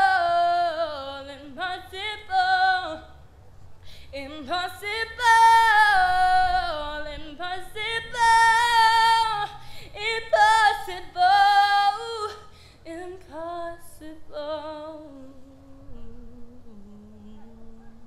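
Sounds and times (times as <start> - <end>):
woman singing unaccompanied: 0.0 - 3.2, 4.1 - 18.0
breaths: 3.8 - 4.2, 9.5 - 10.0, 12.5 - 12.9.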